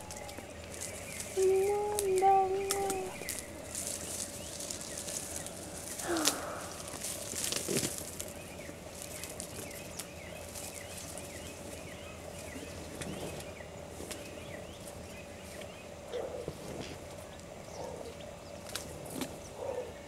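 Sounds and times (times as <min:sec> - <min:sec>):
bird chirping: 0:00.0 - 0:07.3
grass being torn and chewed: 0:00.0 - 0:11.8
rustles: 0:00.0 - 0:17.6, 0:18.5 - 0:19.6
faint steady hum: 0:00.0 - 0:20.0.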